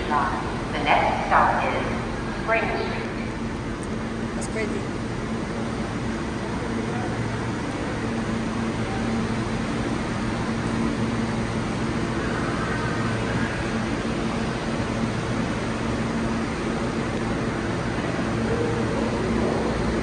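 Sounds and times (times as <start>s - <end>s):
constant wash of noise: 0.0s - 20.0s
train air-conditioning hum: 0.0s - 20.0s.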